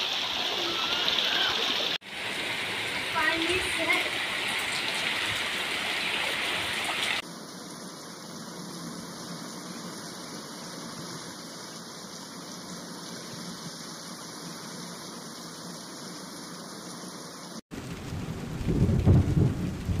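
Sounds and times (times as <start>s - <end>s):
heavy rain on water: 0.0s - 20.0s.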